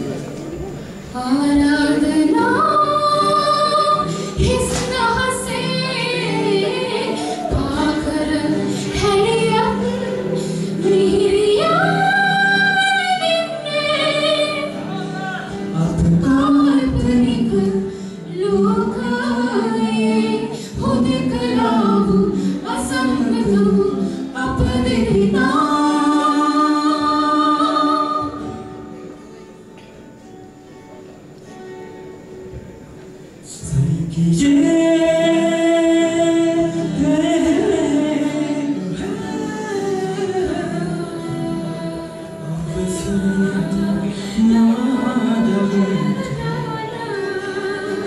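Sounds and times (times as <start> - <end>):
acoustic guitar: 0.0 - 48.0
woman singing: 1.1 - 28.9, 33.5 - 48.0
man singing: 14.8 - 17.8, 33.5 - 48.0.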